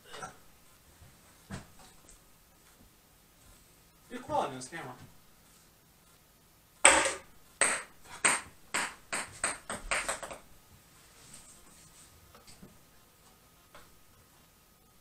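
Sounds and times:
ping pong ball bouncing on wood floor: 0:06.8 - 0:10.4.

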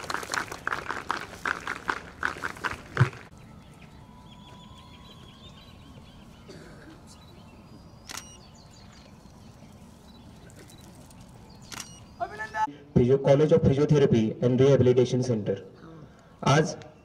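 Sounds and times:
faint bird chirps: 0:03.4 - 0:12.7.

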